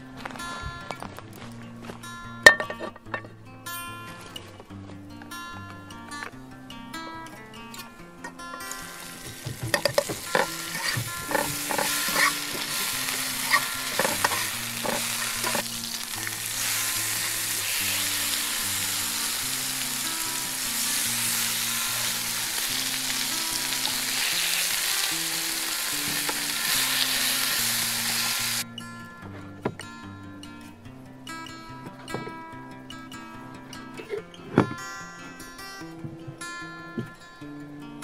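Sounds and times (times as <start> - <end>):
food sizzling in a pan: 8.6 - 28.6
utensil scraping a pan: 8.9 - 22.6.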